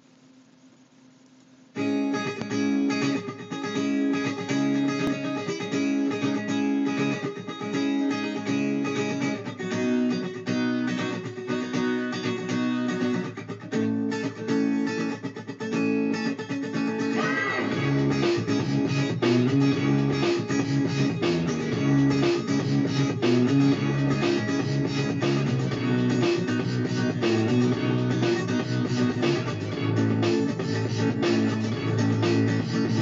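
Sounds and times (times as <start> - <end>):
faint low hum: 0.0 - 9.0
plucked guitar music: 1.8 - 33.0.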